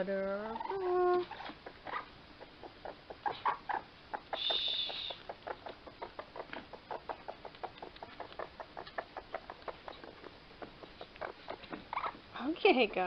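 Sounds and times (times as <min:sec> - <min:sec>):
baby raccoons chittering: 0:00.1 - 0:13.0.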